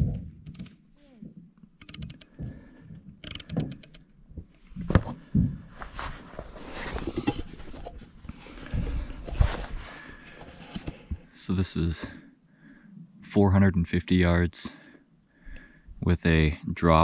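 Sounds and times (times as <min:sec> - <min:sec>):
rubbing and bumping from handling: 0:00.0 - 0:11.3
scope turret clicking: 0:00.4 - 0:00.8, 0:01.8 - 0:02.3, 0:03.2 - 0:04.1.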